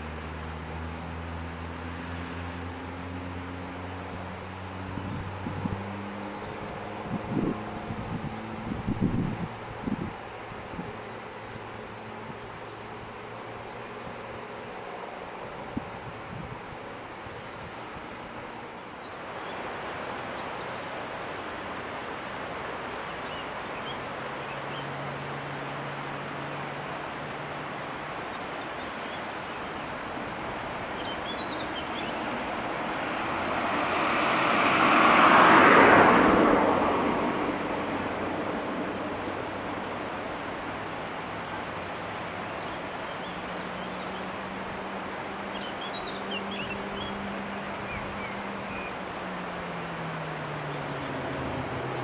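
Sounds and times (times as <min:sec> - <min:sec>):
vehicle passing by: 0:00.0 - 0:16.5, 0:31.8 - 0:52.0.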